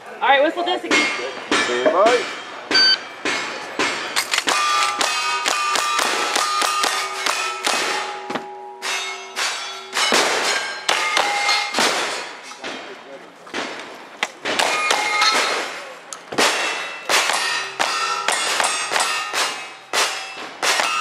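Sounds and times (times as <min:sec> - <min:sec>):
steel targets ringing: 0:00.8 - 0:12.6, 0:14.6 - 0:15.8, 0:16.4 - 0:21.0
rapid gunshots: 0:04.4 - 0:08.1, 0:16.4 - 0:21.0.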